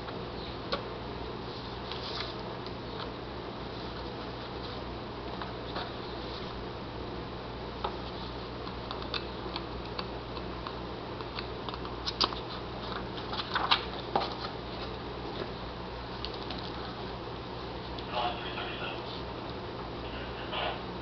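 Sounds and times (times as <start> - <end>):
steady low hum: 0.0 - 21.0
paper pages rustling: 1.5 - 2.4, 11.7 - 15.5, 16.1 - 17.1
sharp paper crinkles: 12.0 - 14.5.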